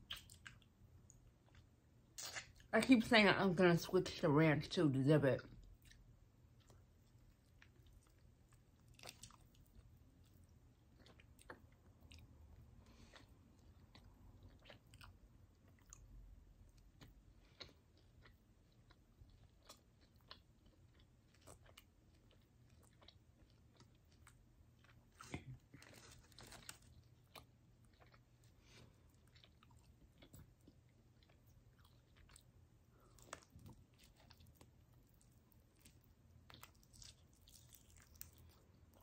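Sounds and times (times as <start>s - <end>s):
small mouth clicks: 0.0s - 0.7s, 2.2s - 2.7s
person chewing food: 0.0s - 2.7s, 5.5s - 39.0s.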